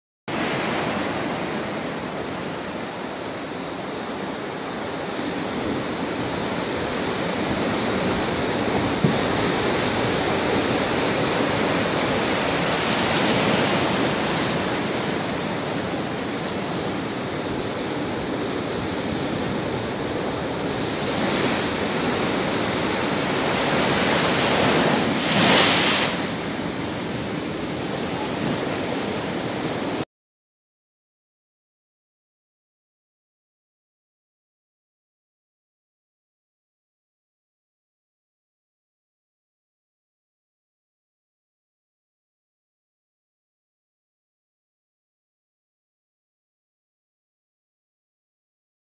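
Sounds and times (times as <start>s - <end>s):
waves crashing against pier: 0.3s - 30.0s.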